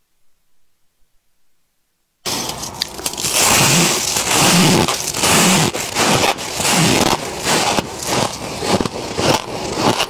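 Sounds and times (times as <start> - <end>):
frost being chewed: 2.3 - 10.0.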